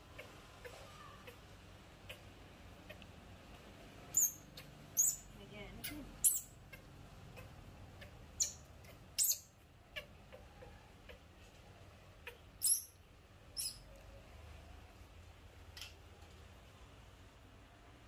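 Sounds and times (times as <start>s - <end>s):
baby monkey squealing: 4.1s - 11.2s, 12.2s - 13.0s, 13.6s - 13.8s.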